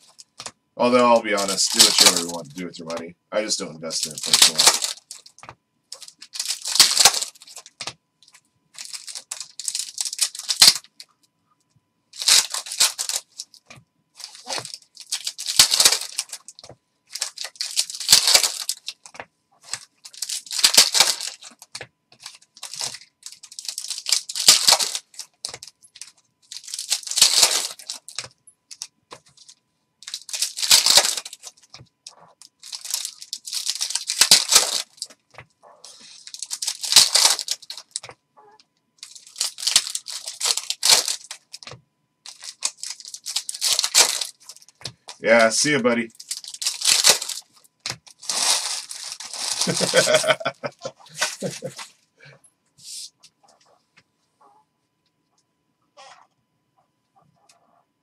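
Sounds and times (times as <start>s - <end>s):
foil packs tearing and crinkling: 0.0s - 7.9s, 8.8s - 11.0s, 12.2s - 13.6s, 14.2s - 35.2s, 35.8s - 38.1s, 39.0s - 50.5s, 51.1s - 51.9s.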